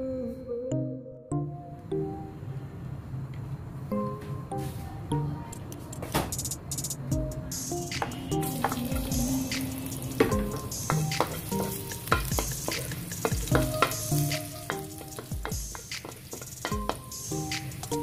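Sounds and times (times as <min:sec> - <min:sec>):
garlic sizzling in hot oil: 0:08.4 - 0:18.0
wooden spatula scraping a wok: 0:10.0 - 0:18.0.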